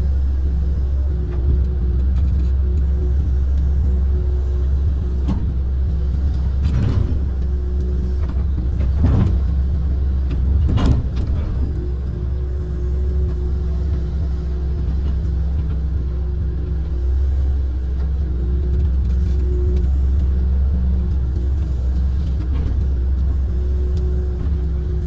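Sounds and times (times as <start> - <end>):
excavator diesel engine droning: 0.0 - 25.0.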